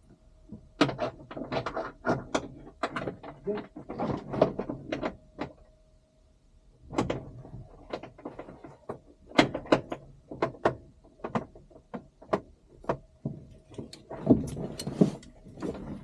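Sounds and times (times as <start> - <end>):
clicks and knocks in cockpit: 0.5 - 5.7, 6.9 - 16.0.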